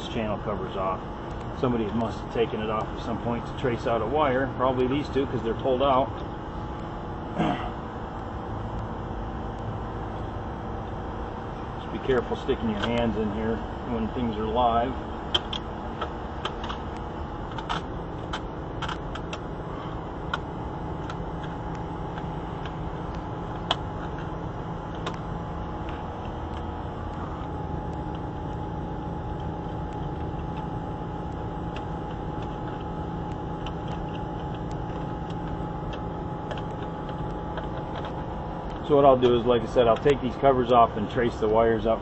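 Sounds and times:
air conditioning unit humming: 0.0 - 42.0
light clicks and taps: 12.7 - 13.1.

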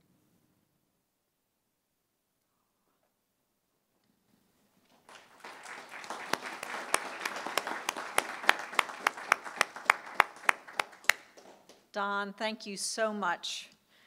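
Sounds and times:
applause: 4.9 - 11.8
sharp close hand claps: 5.0 - 11.8.

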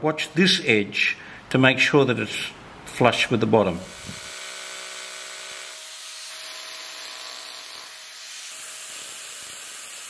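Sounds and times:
power chisel shaving wood: 3.9 - 10.0.

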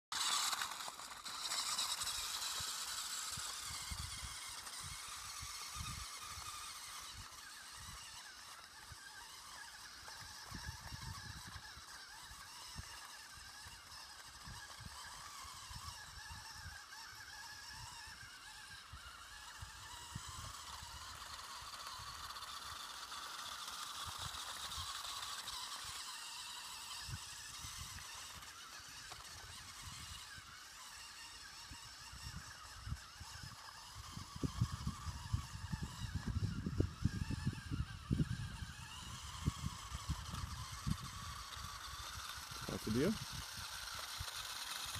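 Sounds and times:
toy tractor motor whining: 0.1 - 44.9.

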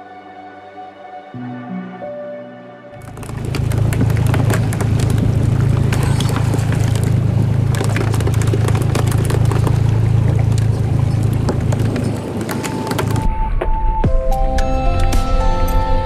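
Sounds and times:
water splashing along hull: 3.0 - 13.3
boat engine humming: 3.0 - 13.4.

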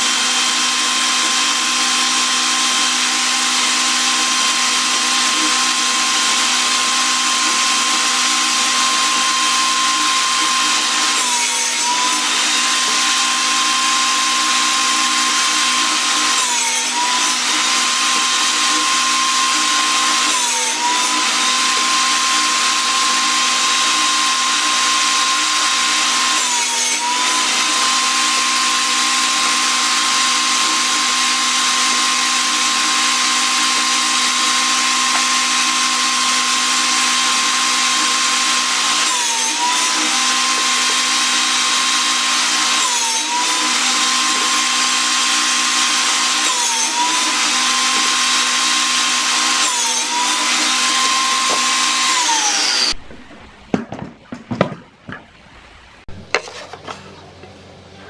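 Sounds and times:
table saw cutting wood: 0.0 - 53.0, 56.1 - 58.0
wooden boards knocking: 53.0 - 55.4.

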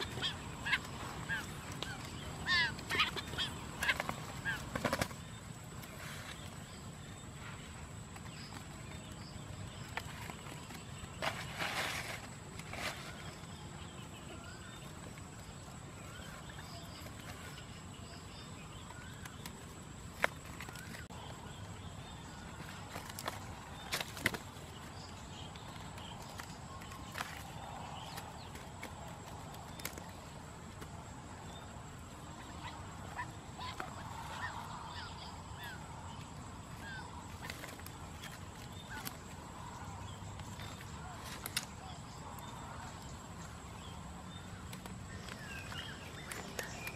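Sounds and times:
quail chirping: 0.0 - 5.4, 32.2 - 40.0
small bird chirping: 0.0 - 30.3
wicker basket clicks and rustles: 8.0 - 13.7, 22.4 - 34.9, 35.9 - 46.9.

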